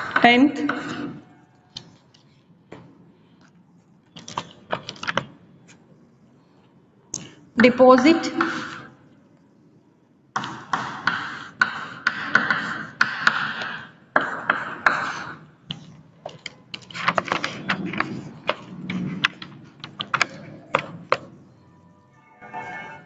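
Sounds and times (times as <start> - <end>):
chalk writing on blackboard: 10.4 - 15.4.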